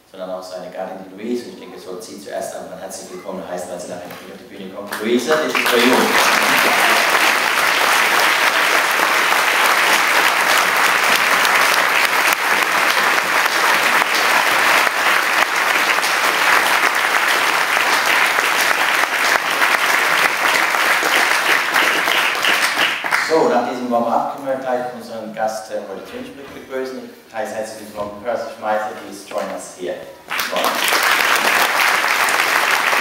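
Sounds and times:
audience applauding: 5.0 - 23.5, 30.3 - 33.0.

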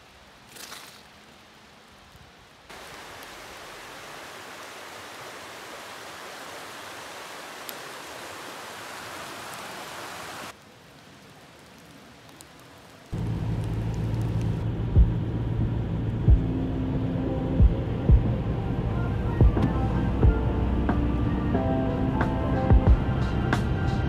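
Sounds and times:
mountain stream rushing: 2.7 - 14.6
music with a steady beat: 16.3 - 16.5, 17.6 - 18.4, 19.3 - 24.0.

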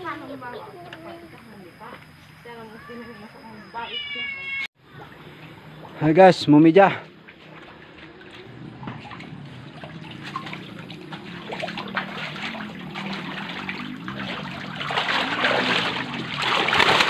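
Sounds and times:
fish splashing at water surface: 7.1 - 17.0.

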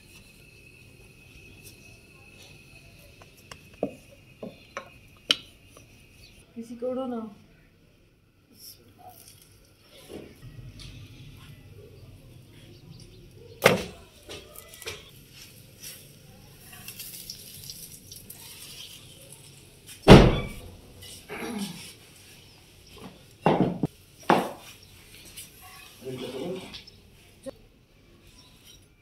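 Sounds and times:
cooking utensils knocking: 3.2 - 5.9
iron griddle thumping: 13.6 - 15.1, 20.1 - 21.2.

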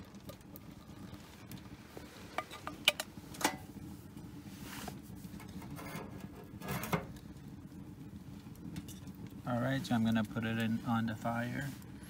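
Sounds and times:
scraping and handling noise: 4.5 - 7.2.

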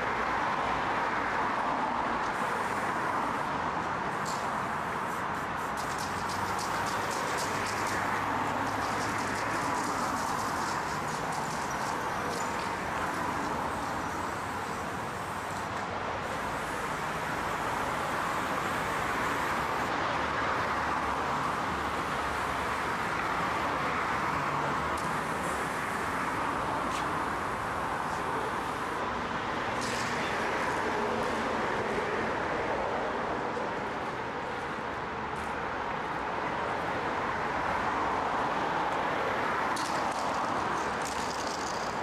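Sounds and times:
steady traffic noise: 0.0 - 42.0.

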